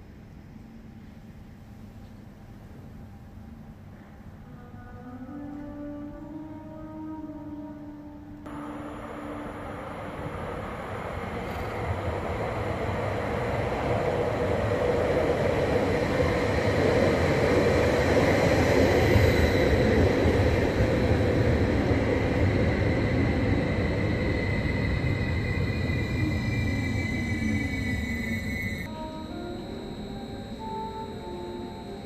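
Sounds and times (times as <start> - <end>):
thin steady whine: 8.4 - 32.0
train wheels rumbling on rail: 8.5 - 28.9.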